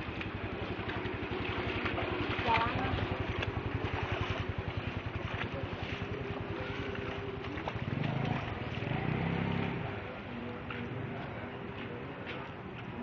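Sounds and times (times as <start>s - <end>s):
small engine chugging: 0.0s - 9.9s.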